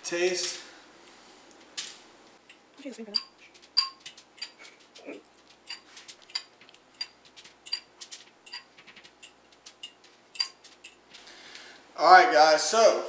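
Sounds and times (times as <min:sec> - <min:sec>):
utensil clinking on metal tray: 0:02.5 - 0:04.7, 0:05.6 - 0:11.0.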